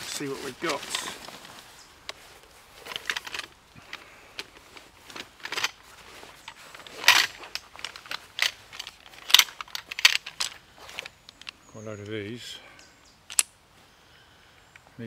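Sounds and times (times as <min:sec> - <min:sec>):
fabric rustling and scraping: 0:00.0 - 0:11.2
aluminium poles clinking: 0:00.0 - 0:11.6.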